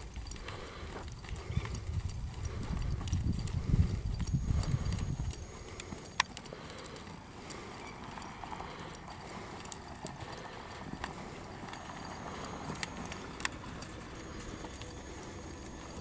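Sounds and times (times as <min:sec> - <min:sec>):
sharp clicks: 0:00.0 - 0:10.4
horse hoofbeats on dirt: 0:00.0 - 0:16.0.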